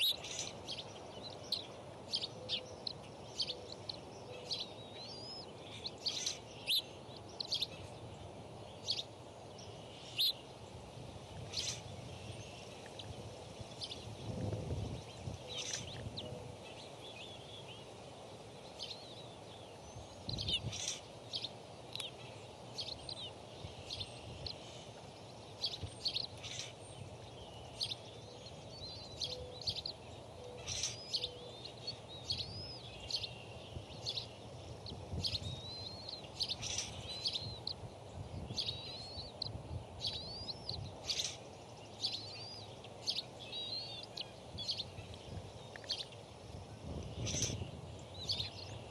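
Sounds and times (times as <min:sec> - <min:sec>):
birds chirping and whistling: 0:00.0 - 0:07.9, 0:25.5 - 0:46.2, 0:46.8 - 0:48.9.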